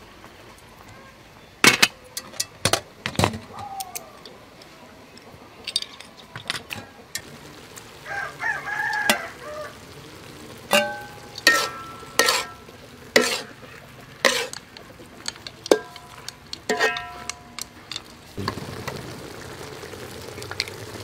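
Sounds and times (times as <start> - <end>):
spatula clanging on a metal wok: 10.7 - 13.6, 14.2 - 14.6, 15.2 - 18.0.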